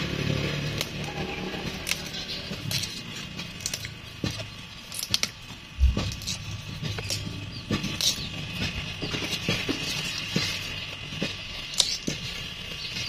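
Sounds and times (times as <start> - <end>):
rustling of dry leaves: 0.0 - 13.0
bamboo shoots snapping: 0.6 - 8.8.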